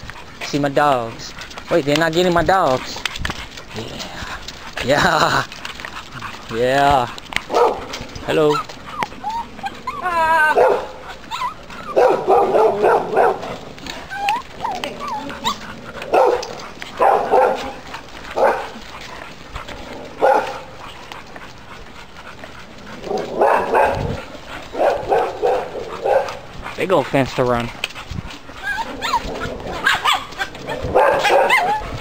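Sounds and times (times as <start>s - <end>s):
dog barking: 7.5s - 8.0s, 10.5s - 11.0s, 11.9s - 13.6s, 14.8s - 18.8s, 20.2s - 20.7s, 23.1s - 26.4s, 29.0s - 31.9s
dog whining: 8.4s - 17.7s, 28.5s - 32.0s.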